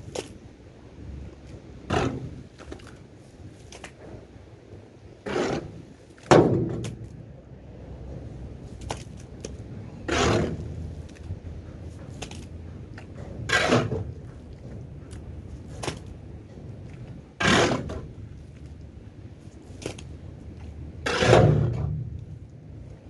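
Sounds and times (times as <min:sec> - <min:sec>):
shovel scraping trailer floor: 0:01.9 - 0:02.8, 0:05.2 - 0:07.0, 0:10.0 - 0:11.2, 0:13.2 - 0:14.5, 0:17.0 - 0:18.6, 0:19.4 - 0:22.2.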